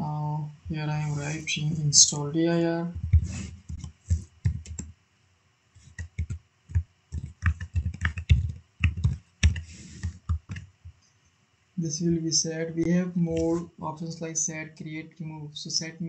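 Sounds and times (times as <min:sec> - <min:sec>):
typing on computer keyboard: 0:03.1 - 0:04.9, 0:05.8 - 0:10.6.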